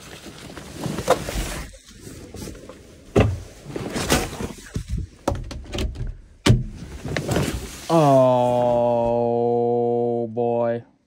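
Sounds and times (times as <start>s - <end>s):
plastic mat pulled out: 0.0s - 5.2s.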